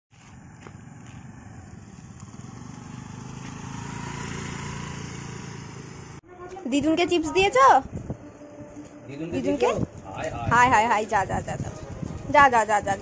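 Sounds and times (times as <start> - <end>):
scooter engine passing: 0.2 - 6.6.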